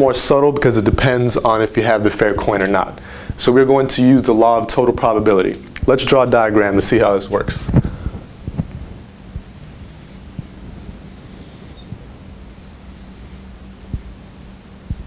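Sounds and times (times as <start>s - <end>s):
marker squeaking on whiteboard: 8.2s - 8.7s, 9.4s - 15.0s.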